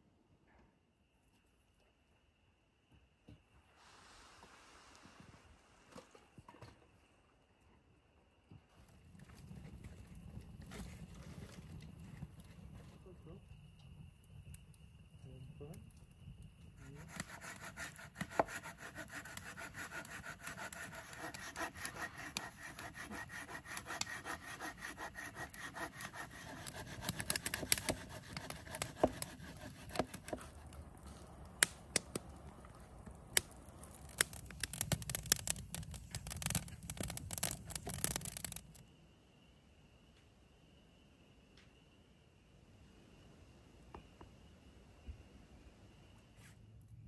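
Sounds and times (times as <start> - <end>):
hand saw sawing wood: 16.8 - 30.4
wood cracking and snapping: 33.3 - 38.8.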